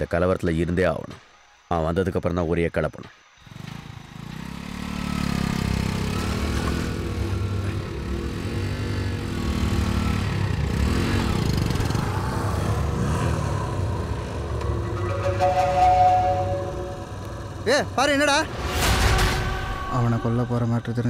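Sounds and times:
motorcycle engine revving: 3.4s - 18.8s.

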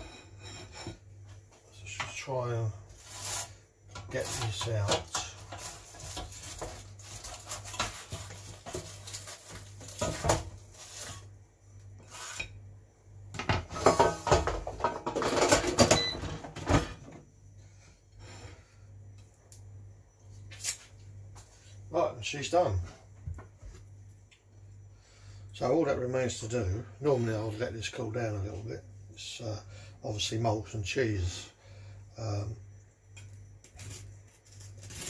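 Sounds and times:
spatula scraping metal basket: 2.9s - 11.3s.

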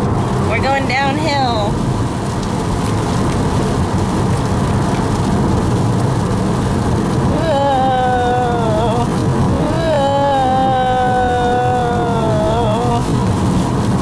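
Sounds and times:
car road and engine noise: 0.0s - 14.0s
drawn-out voice: 7.3s - 13.1s.

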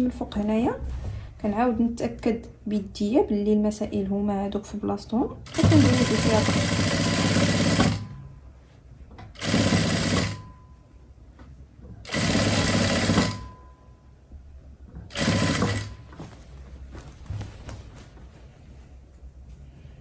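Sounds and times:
sewing machine stitching: 5.4s - 8.1s, 9.4s - 10.5s, 12.0s - 13.5s, 15.0s - 16.1s.

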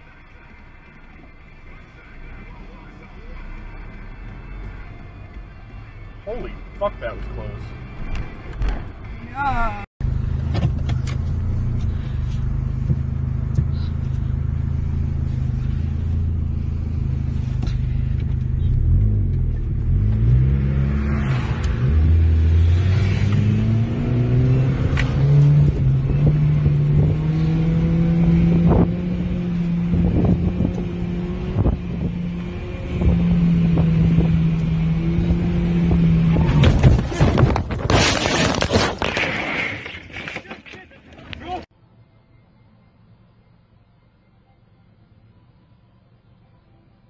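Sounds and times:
car engine accelerating: 10.0s - 37.8s.

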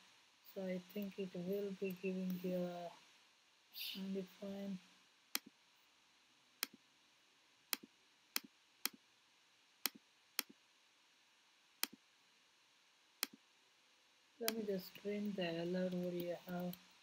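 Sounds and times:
computer mouse clicking: 15.2s - 16.9s.

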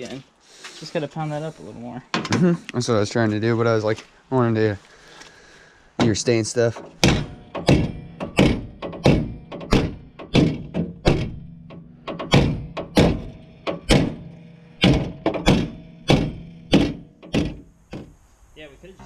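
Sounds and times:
hammer strikes on metal: 6.8s - 18.2s.

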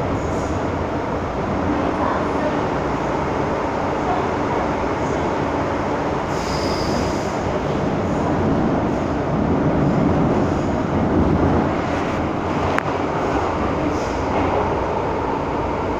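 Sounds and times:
train wheels on rail: 0.0s - 15.9s
high wheel squeal: 6.3s - 7.3s.

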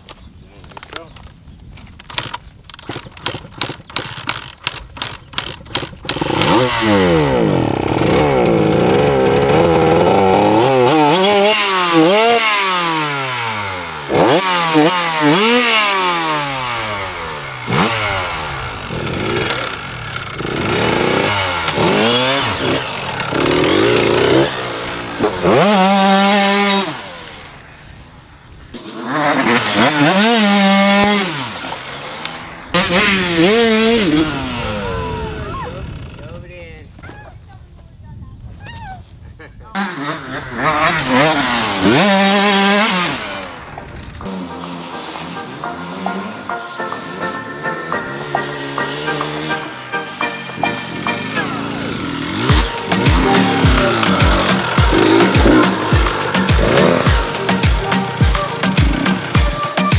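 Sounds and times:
sharp clicks: 0.0s - 6.7s
dirt bike engine revving: 3.0s - 36.4s, 39.7s - 59.9s.

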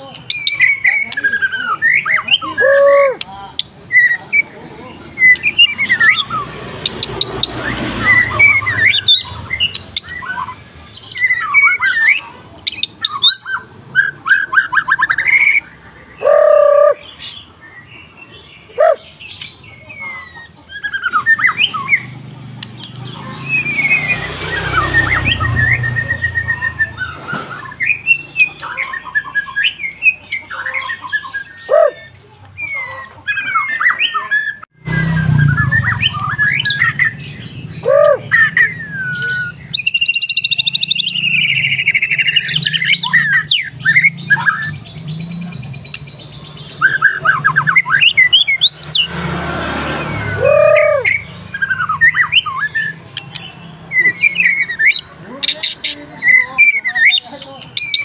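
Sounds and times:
bird singing whistles and trills: 23.4s - 49.1s, 49.9s - 55.1s.

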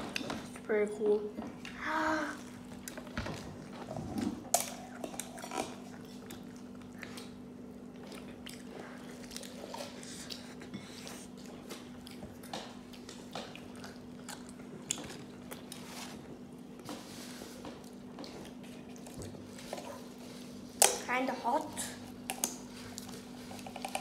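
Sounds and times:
wet chewing: 2.6s - 16.9s, 22.1s - 24.0s.

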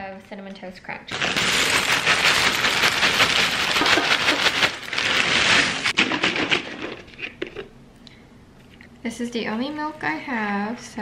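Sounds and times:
cereal pouring into ceramic bowl: 1.1s - 6.0s.

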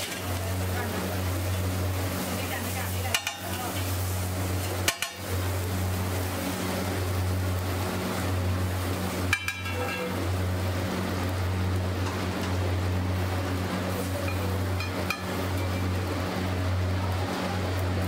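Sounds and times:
metal spatula clinking on griddle: 3.0s - 3.9s, 4.8s - 5.3s, 9.3s - 10.2s, 14.2s - 15.8s.

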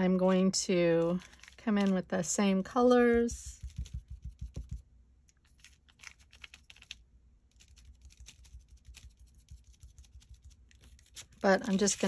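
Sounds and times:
sponge tapping on stencil: 3.6s - 4.8s.

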